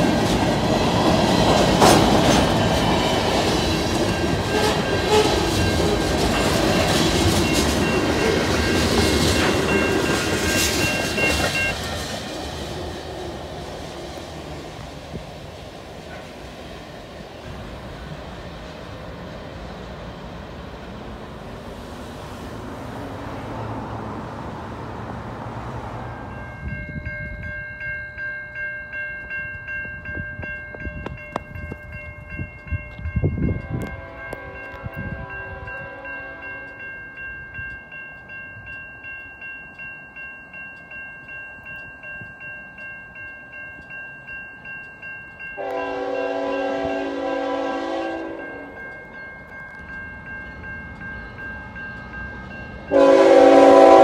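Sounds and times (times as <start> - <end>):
level crossing bells ringing: 2.6 - 11.9, 26.0 - 53.3
locomotive air horn: 4.4 - 5.6, 33.7 - 36.7, 45.6 - 48.7, 52.9 - 54.0.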